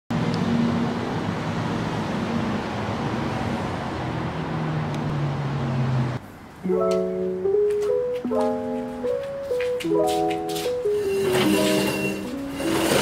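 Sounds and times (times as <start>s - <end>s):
road traffic noise: 0.1s - 13.0s
soft piano music: 6.6s - 13.0s.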